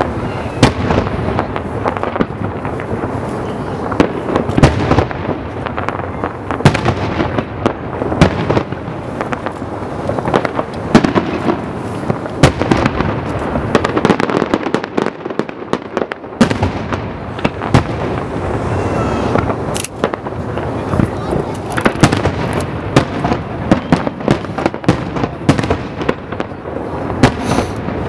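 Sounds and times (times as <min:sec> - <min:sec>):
firework shells bursting: 0:19.2 - 0:26.5.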